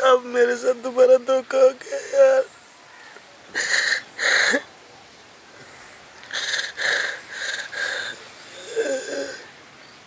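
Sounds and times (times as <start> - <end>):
man sobbing: 1.5 - 2.5, 3.5 - 4.7.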